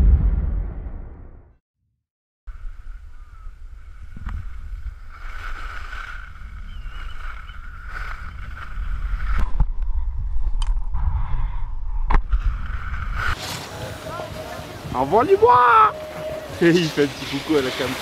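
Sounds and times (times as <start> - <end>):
skis scraping over snow: 3.9 - 9.4, 12.8 - 18.0.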